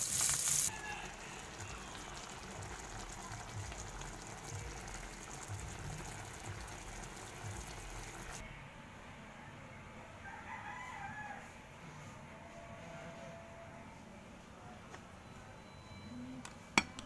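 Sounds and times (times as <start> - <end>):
fish sizzling in hot oil: 0.0 - 8.4
pot of liquid bubbling: 0.0 - 8.4.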